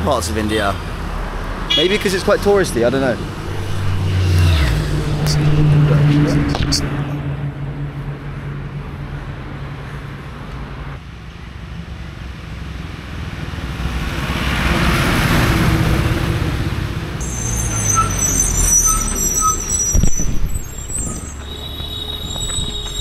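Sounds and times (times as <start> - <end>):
vehicle passing: 0.6 - 11.0
brakes squealing: 1.6 - 10.2, 17.2 - 23.0
garbage truck pulling up: 17.2 - 23.0.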